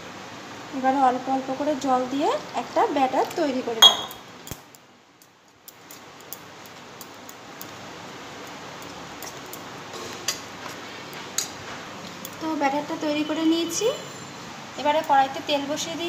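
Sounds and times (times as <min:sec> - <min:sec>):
spoon clinking on metal bowl: 0:03.8 - 0:04.2.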